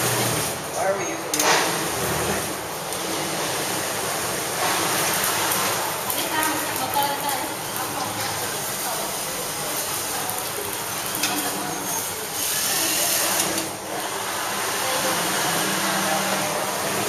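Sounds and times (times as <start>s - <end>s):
steady background noise: 0.0s - 17.0s
sewing machine running: 9.7s - 17.0s.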